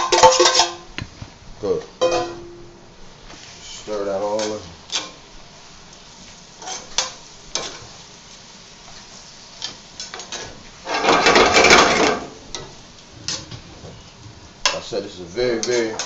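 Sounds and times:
food sizzling: 0.0s - 16.0s
spoon scraping a skillet: 6.2s - 8.0s, 8.8s - 16.0s.

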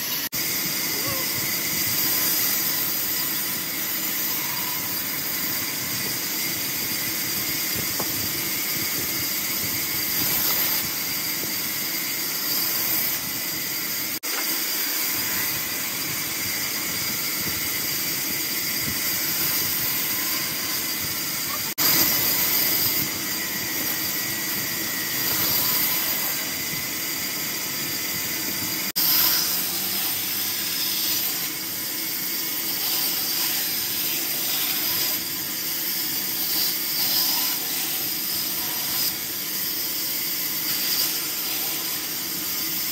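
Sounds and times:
band saw cutting logs: 0.0s - 42.9s.

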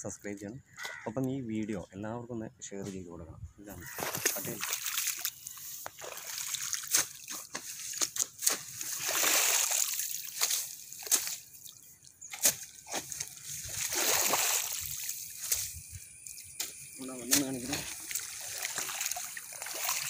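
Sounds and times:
mud squelching: 3.7s - 20.0s
water splashing: 3.8s - 20.0s
hoe dragging through mud: 12.4s - 15.8s.

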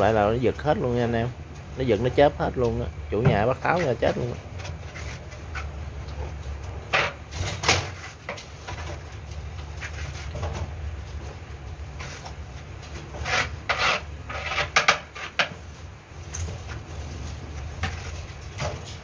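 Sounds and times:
steady low hum: 0.0s - 19.0s
trowel scraping adhesive on tile: 13.1s - 15.5s.

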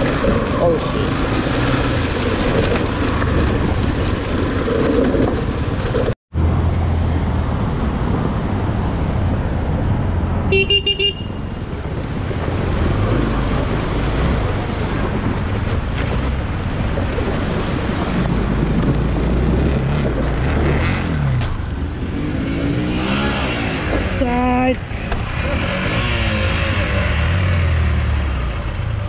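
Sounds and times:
motorcycle engine hum: 0.0s - 29.0s
motorcycle horn toots: 10.5s - 11.5s
wind rush: 11.4s - 27.5s.

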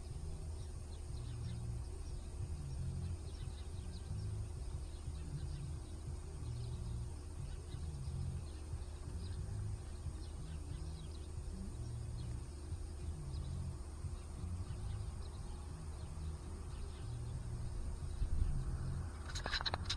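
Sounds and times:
faint bird chirps: 0.0s - 19.9s
steady low rumble: 0.0s - 19.9s.

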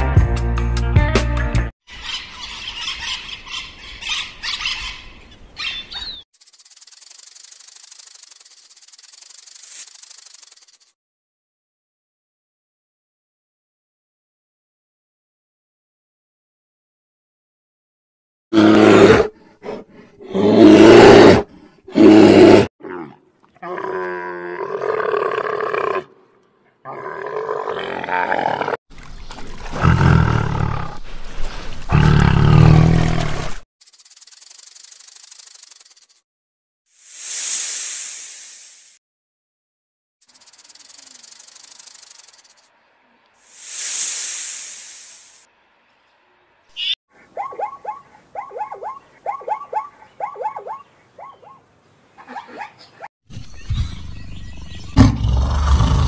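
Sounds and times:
descending bird chirp: 1.9s - 8.0s, 46.7s - 51.6s, 52.2s - 55.4s
high rasping buzz of clicks: 6.4s - 11.0s, 40.2s - 42.7s
tiger roaring: 31.9s - 33.6s, 55.0s - 56.0s.

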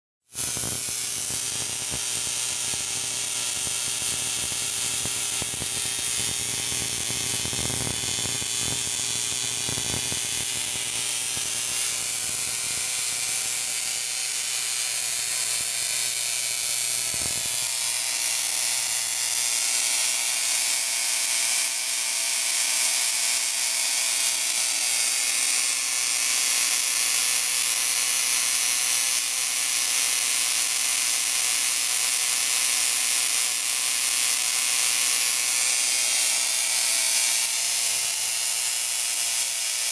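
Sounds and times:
tesla coil buzzing hiss: 0.3s - 19.3s.

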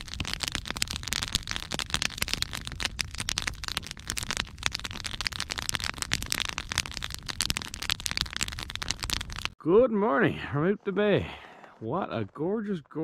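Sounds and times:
wood fire crackling: 0.0s - 9.6s.

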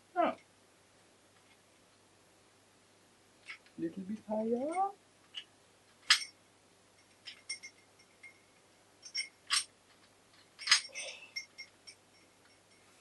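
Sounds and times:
small metal parts clinking: 4.6s - 6.4s, 7.0s - 12.9s.

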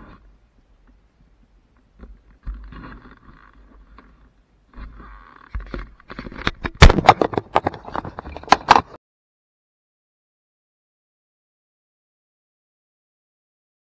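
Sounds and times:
muffled rubbing and scraping: 0.0s - 9.0s.

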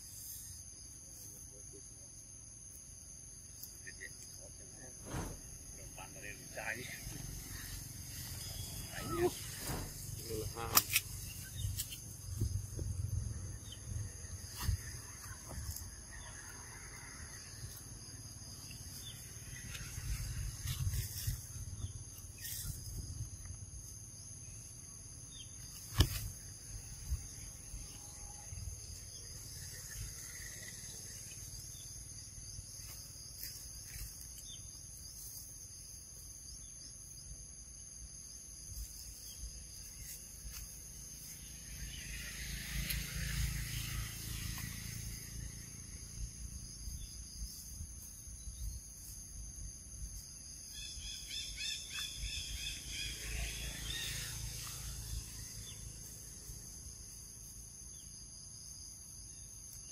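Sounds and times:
insects buzzing high-pitched: 0.0s - 59.9s
sharp click: 10.7s - 11.1s.

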